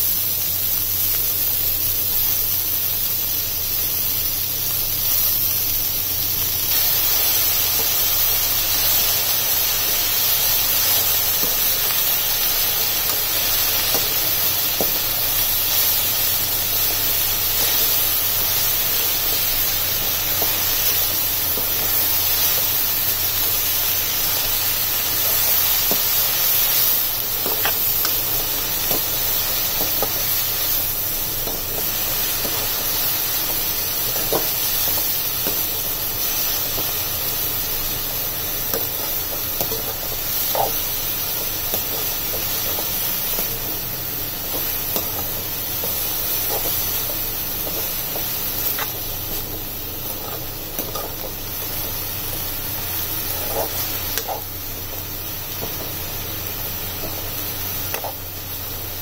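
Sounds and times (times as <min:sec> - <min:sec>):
leaves sizzling in hot oil: 0:00.0 - 0:59.0
spatula scraping a pan: 0:44.4 - 0:49.0, 0:50.0 - 0:51.4, 0:53.3 - 0:54.5.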